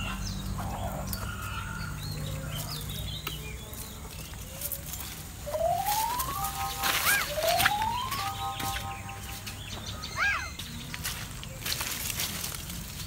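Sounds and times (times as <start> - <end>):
birds chirping: 0.0 - 13.0
rising electronic tone: 5.4 - 9.3.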